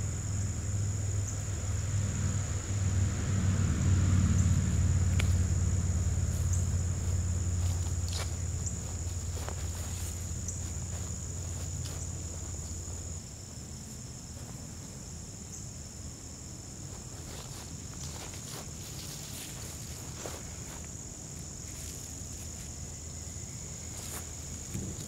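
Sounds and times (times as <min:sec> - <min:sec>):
low hum: 0:00.0 - 0:13.9
high-pitched insect chorus: 0:00.0 - 0:25.0.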